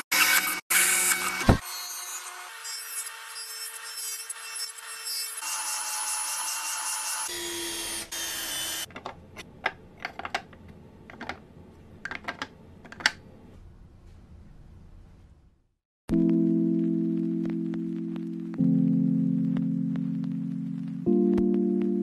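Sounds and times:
table saw whining: 0.0 - 8.9.

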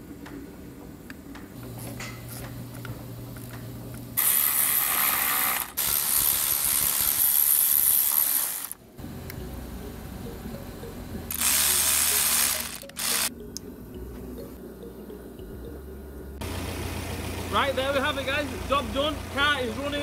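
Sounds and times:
hand ratchet clicking: 11.3 - 13.3.

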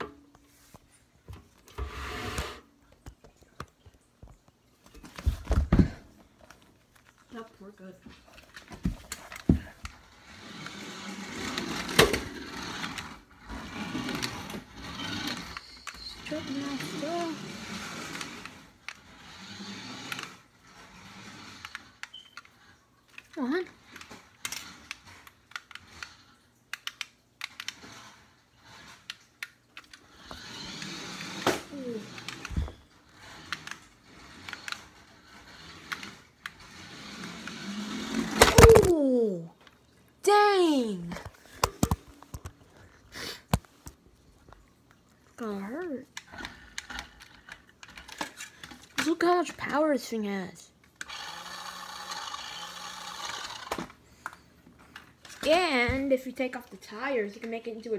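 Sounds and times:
tyres rolling on hard floor: 1.2 - 3.6, 4.8 - 6.6, 7.3 - 22.2, 29.9 - 38.8
wheels rattling on hard floor: 8.2 - 22.4
toy truck motor whirring: 9.3 - 38.7, 45.4 - 49.9, 51.0 - 57.9.

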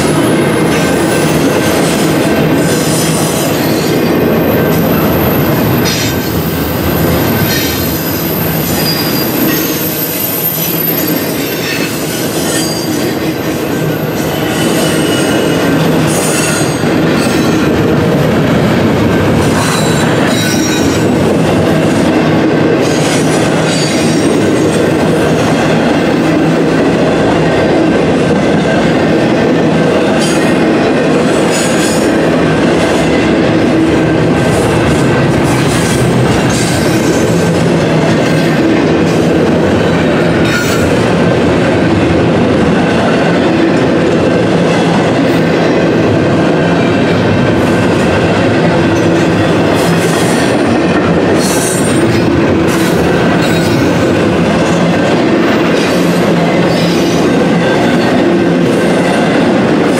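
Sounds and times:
steel wheels rumbling on rails: 0.0 - 59.9
high wheel squeals: 7.4 - 13.0.

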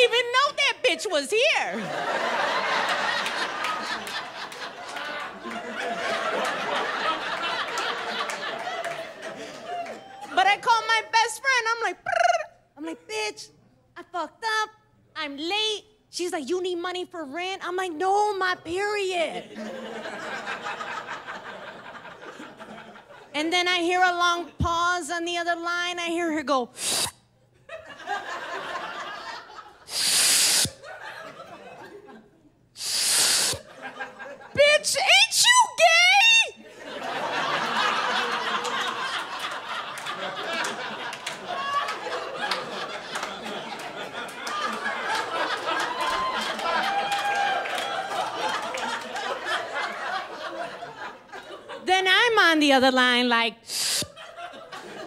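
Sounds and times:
audience laughing: 0.0 - 10.3, 12.0 - 12.6, 19.3 - 23.3, 27.6 - 34.7, 36.6 - 51.8, 53.8 - 55.0
hissing breath into microphone: 26.8 - 27.2, 29.9 - 30.8, 32.8 - 33.7, 53.7 - 54.2
hand claps: 38.6 - 45.3.

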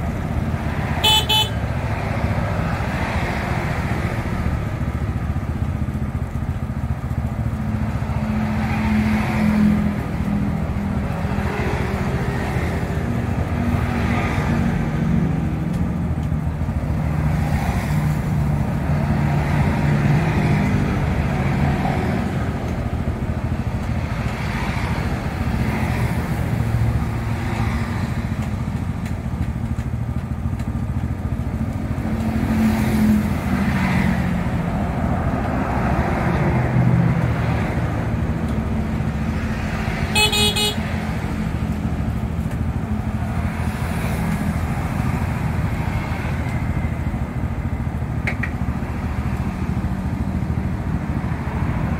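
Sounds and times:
traffic passing: 0.0 - 51.9
car horn toot: 1.0 - 1.6, 40.1 - 40.9.

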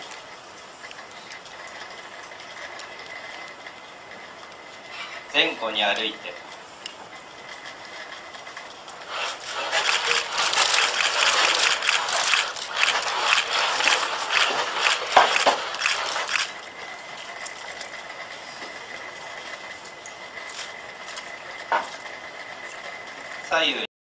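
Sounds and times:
robot motors whirring and clicking: 8.9 - 16.6.

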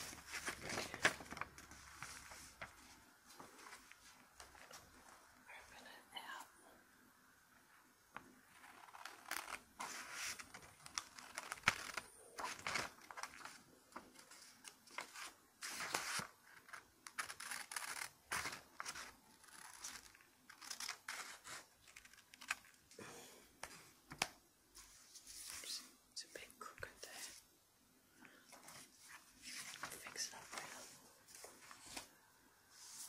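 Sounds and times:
paper rustling and crinkling: 0.0 - 5.2, 8.5 - 22.9, 28.5 - 33.0.

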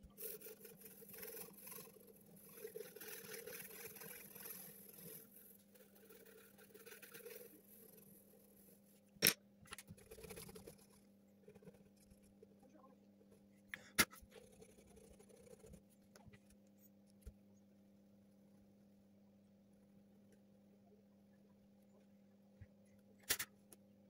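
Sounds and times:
pencil scratching on paper: 0.0 - 9.0, 9.9 - 12.4, 13.7 - 16.9.

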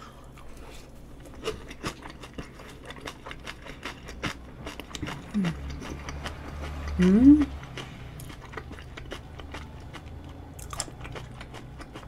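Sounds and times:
chewing sounds: 1.2 - 12.0
person humming: 5.3 - 5.7, 7.0 - 7.6.

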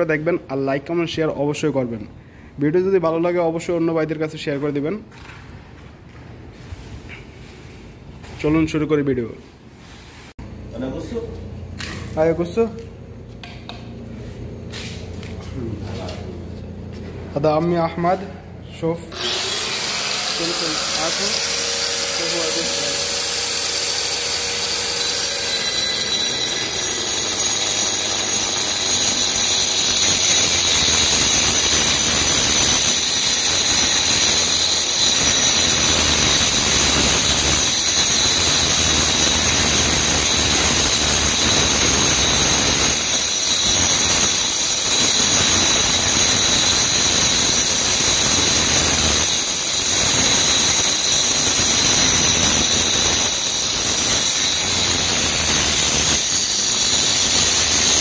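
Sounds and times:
angle grinder cutting tile: 19.1 - 58.0.

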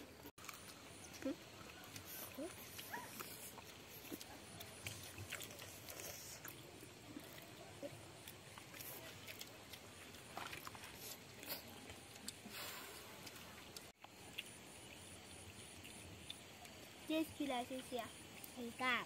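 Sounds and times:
children slurping noodles: 0.4 - 14.0.

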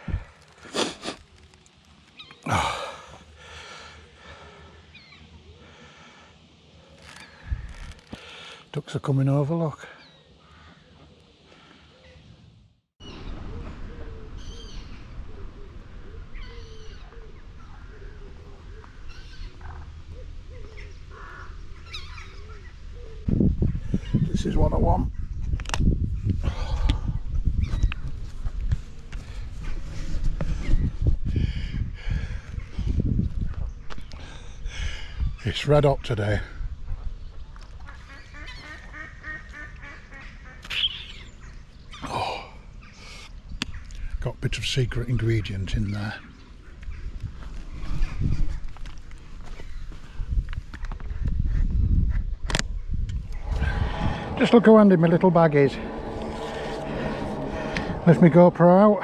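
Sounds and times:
bird cooing: 13.4 - 21.0
steady low rumble: 52.0 - 59.0.

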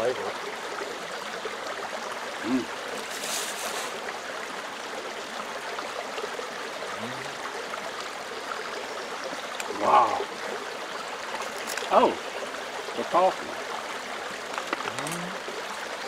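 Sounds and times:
creek water flowing: 0.0 - 16.0
voice humming: 2.4 - 2.7, 6.9 - 7.4, 14.9 - 15.4.

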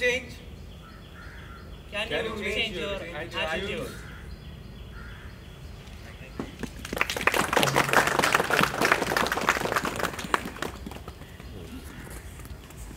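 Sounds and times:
audience applauding: 6.6 - 11.6.

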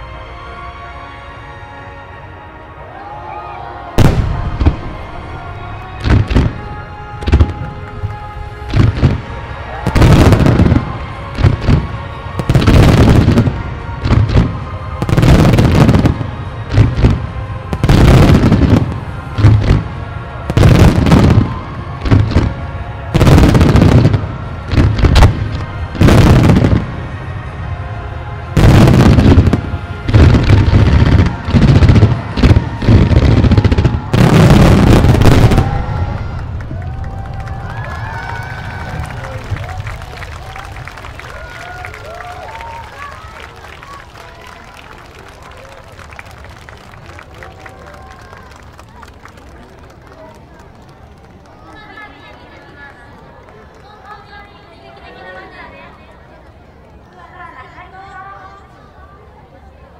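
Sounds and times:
music: 0.0 - 44.2
fireworks booming and crackling: 4.0 - 27.6, 28.2 - 40.6.

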